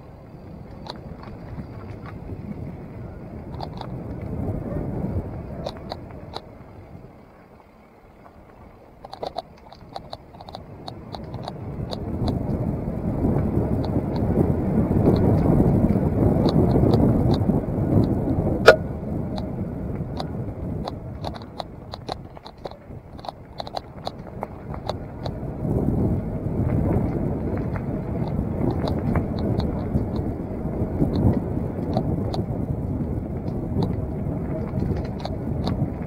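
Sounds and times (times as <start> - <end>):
wind on microphone: 0.0 - 7.1, 10.0 - 36.0
bike tyre rumble: 0.0 - 36.0
bike rattling clicks: 3.5 - 4.4, 5.6 - 6.5, 9.0 - 12.6, 15.1 - 25.4, 27.0 - 30.4, 33.4 - 36.0.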